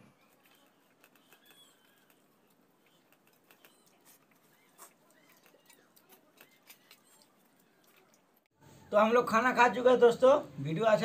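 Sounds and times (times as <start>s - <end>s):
eating clicks and smacks: 0.2s - 8.5s.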